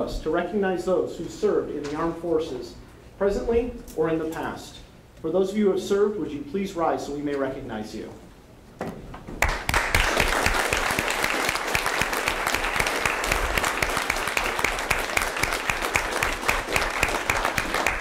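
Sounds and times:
audience applauding: 9.4 - 18.0.

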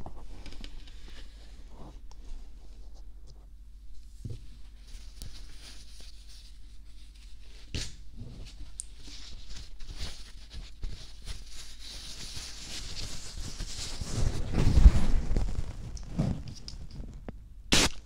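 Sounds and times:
scratching and rubbing on microphone: 9.2 - 17.3.

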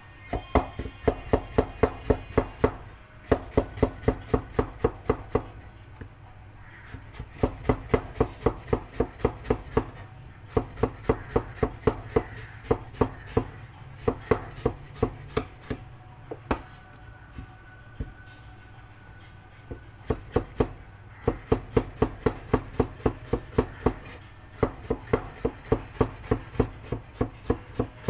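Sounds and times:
knife chopping on cutting board: 6.9 - 9.9, 10.5 - 15.8, 20.1 - 27.9.

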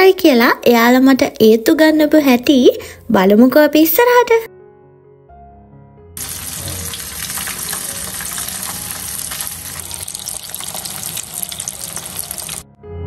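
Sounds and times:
water running from a tap: 6.2 - 12.6.

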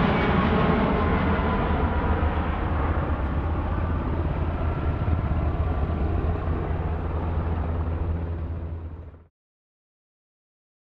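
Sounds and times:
jet airliner passing overhead: 0.0 - 9.3.

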